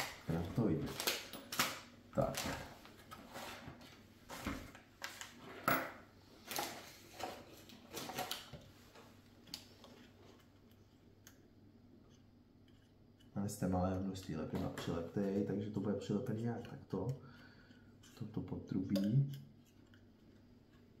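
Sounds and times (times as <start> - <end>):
tools clicking and knocking on table: 5.1 - 6.8.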